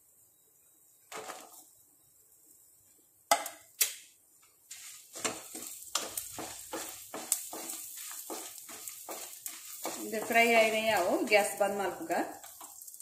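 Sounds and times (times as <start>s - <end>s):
faint frying sizzle: 0.0s - 13.0s
spatula scraping a pan: 4.7s - 13.0s
wooden spatula knocks: 5.2s - 11.2s.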